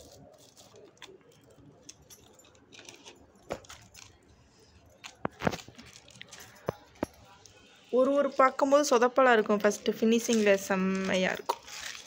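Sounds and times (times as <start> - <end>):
paper rustling and tapping: 5.0 - 7.2.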